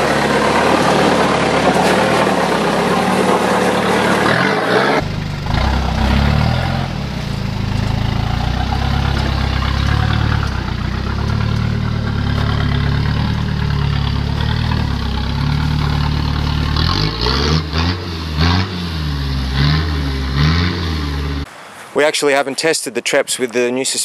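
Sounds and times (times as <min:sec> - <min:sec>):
diesel engine chugging and revving: 0:00.0 - 0:21.5.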